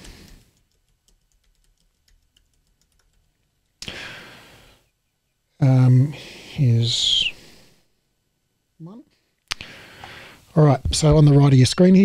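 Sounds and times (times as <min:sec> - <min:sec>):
keyboard typing clicks: 0:00.0 - 0:03.3.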